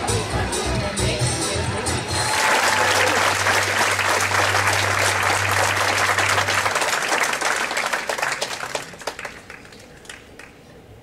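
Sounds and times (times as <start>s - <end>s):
audience applauding: 2.2s - 10.6s.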